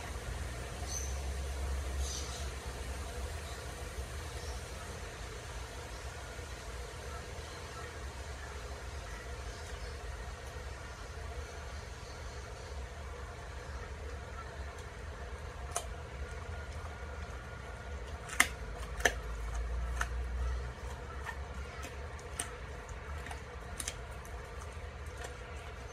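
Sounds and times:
steady low hum: 0.0 - 25.9
dog crunching bone: 13.5 - 25.9.

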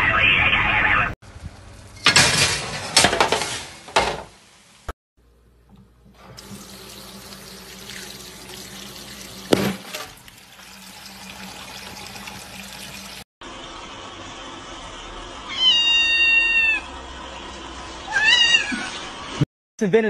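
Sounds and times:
tap running into metal sink: 6.4 - 10.2.

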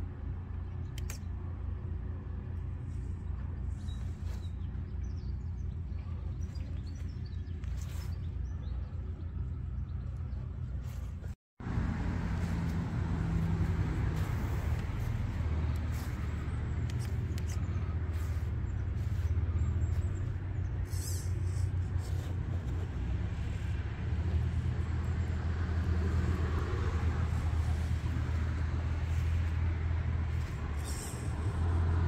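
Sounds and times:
low engine-like rumble: 0.0 - 32.0.

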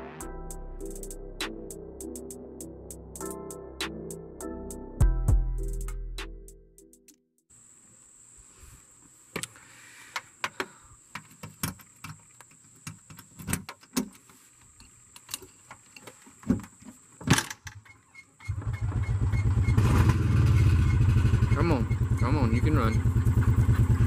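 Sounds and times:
golf cart motor pulsing: 18.5 - 24.0.

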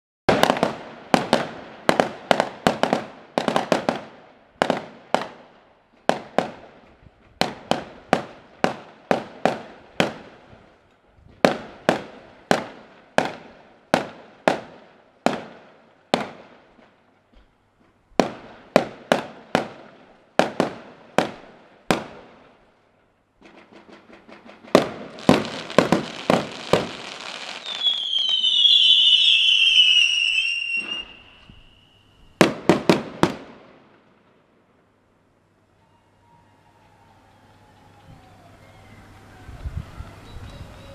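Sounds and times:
firework shells bursting: 23.4 - 33.5
whistling fireworks: 23.4 - 33.8, 35.8 - 40.9
dense firework crackle: 23.4 - 34.0.

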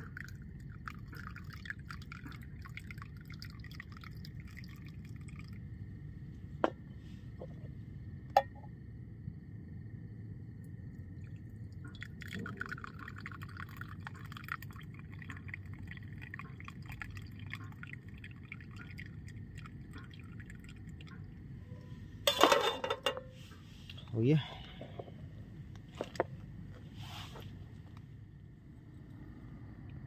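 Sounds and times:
tea trickling into a mug: 0.0 - 5.8, 11.0 - 21.5.

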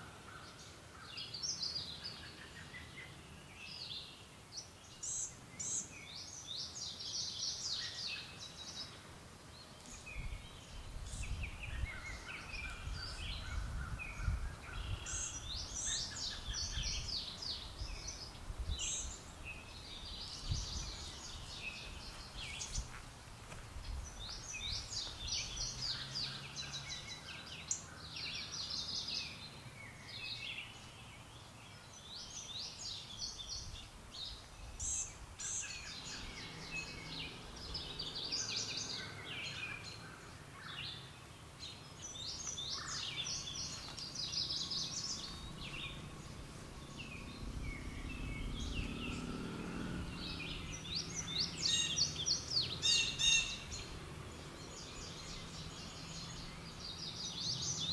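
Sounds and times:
songbirds chirping: 0.0 - 57.9
low rumble: 45.3 - 51.5.

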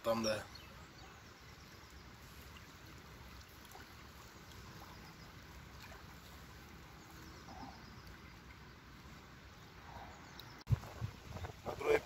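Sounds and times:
wind rumbling on microphone: 9.6 - 12.0.

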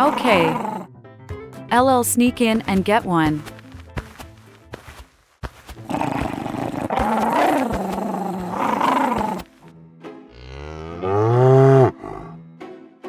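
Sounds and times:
background music: 0.0 - 13.0
cow mooing: 10.3 - 12.4.

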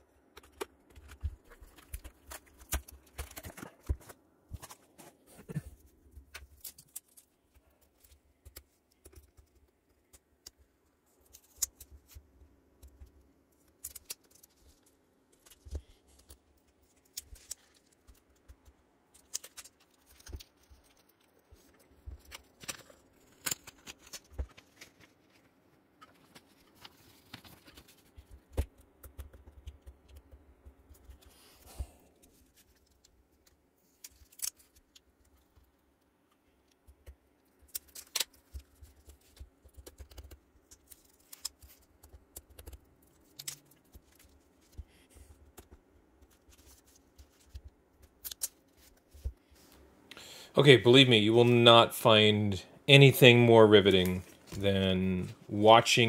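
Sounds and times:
plastic wrap crackling and rustling: 0.0 - 10.4, 12.9 - 29.7.

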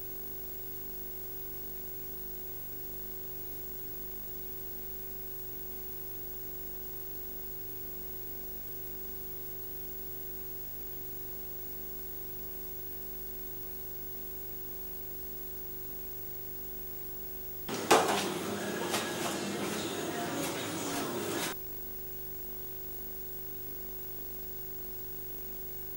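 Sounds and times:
electrical hum: 17.7 - 21.6.

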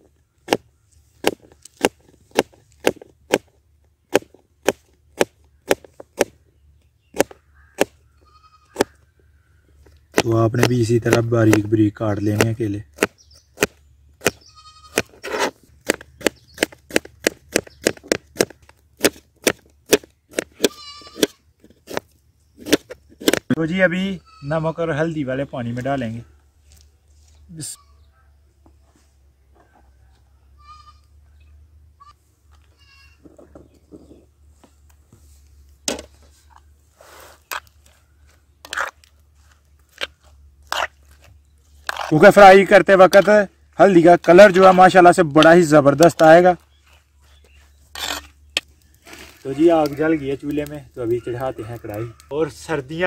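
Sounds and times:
soft scraping rustle: 25.5 - 27.8, 28.8 - 30.3, 32.2 - 42.2, 46.4 - 51.8.

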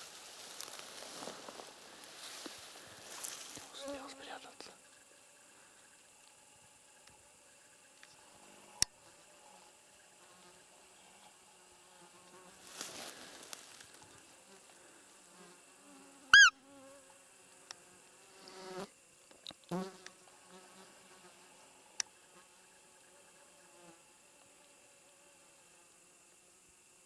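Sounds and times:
grass rustling: 0.0 - 4.2, 12.1 - 15.2
insects humming: 0.0 - 27.0
deer call squeak: 16.3 - 16.6.

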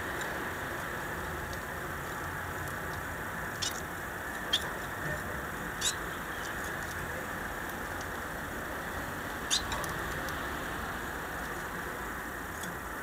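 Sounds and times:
finches chirping: 3.5 - 4.8, 5.7 - 6.6, 9.4 - 9.8.

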